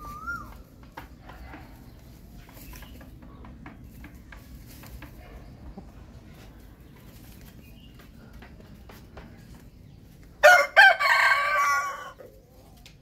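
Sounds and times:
rooster crowing: 10.4s - 12.2s.

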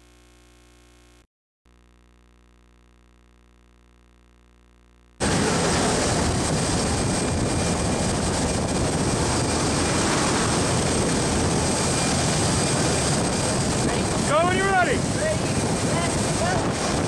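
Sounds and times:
propeller engine noise: 5.2s - 17.0s
wind rushing: 5.2s - 17.0s.

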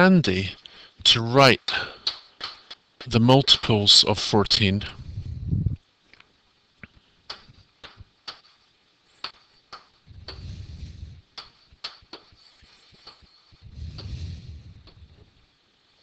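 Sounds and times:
short low rumble: 4.9s - 5.8s.

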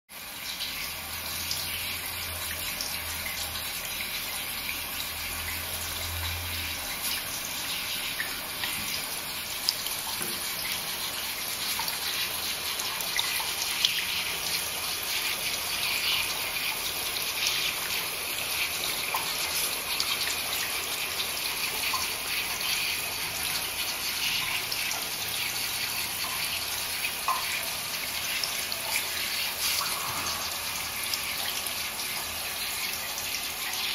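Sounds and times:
tap water running into bath: 0.1s - 33.9s.

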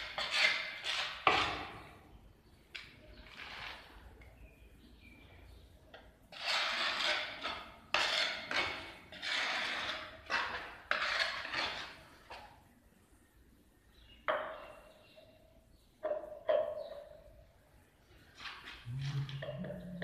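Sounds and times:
trowel scraping wet mortar: 0.0s - 1.9s, 3.2s - 4.1s, 6.3s - 12.4s.

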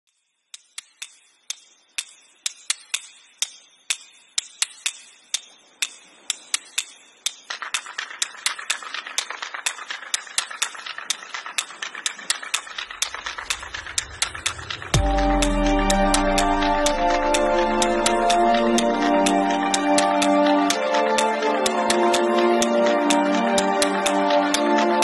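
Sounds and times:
clock-like ticks: 0.1s - 25.0s
music: 0.5s - 25.0s
low rumble: 12.9s - 19.8s
rising hum: 13.0s - 20.5s.

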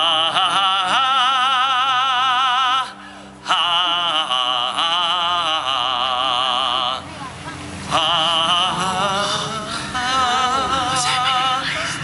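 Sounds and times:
operatic solo singing: 0.0s - 7.1s, 7.8s - 12.0s
singer breath: 3.0s - 3.4s.

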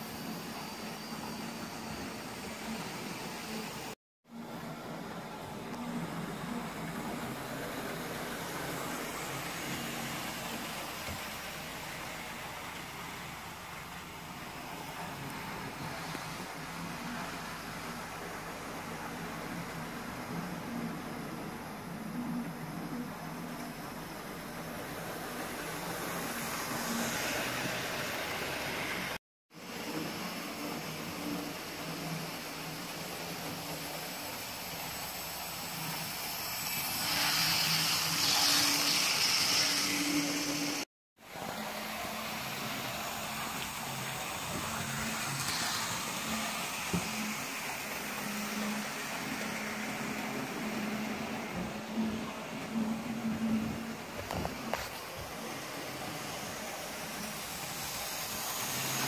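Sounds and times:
wheels on track: 4.5s - 59.0s
model train motor whirring: 31.2s - 40.8s, 42.2s - 51.1s.

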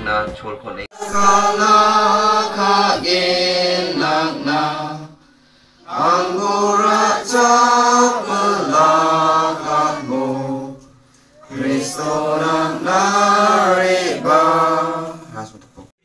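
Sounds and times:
congregation singing a hymn: 1.0s - 5.2s, 5.8s - 15.5s.

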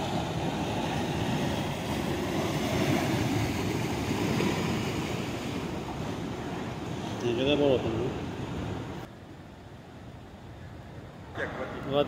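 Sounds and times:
flood water rushing: 0.0s - 9.1s.

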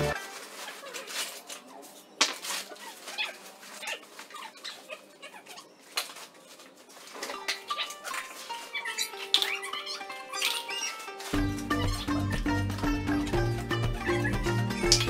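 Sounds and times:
plastic sacks rustling: 0.0s - 4.6s, 5.7s - 12.1s.

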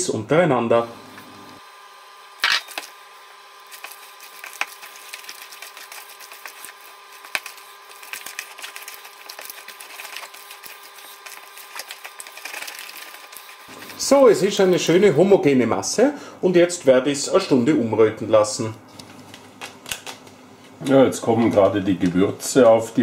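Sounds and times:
faint steady hum: 0.0s - 23.0s
hands kneading meat: 3.7s - 14.8s.

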